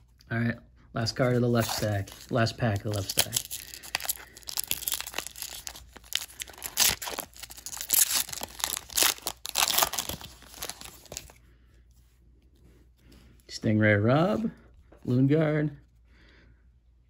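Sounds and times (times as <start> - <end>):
foil wrapper crackling and ripping: 1.5 - 11.4.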